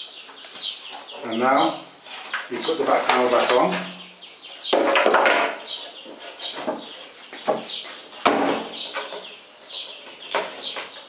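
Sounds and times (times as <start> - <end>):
plywood panels knocking and scraping: 2.1 - 4.0, 4.6 - 9.4.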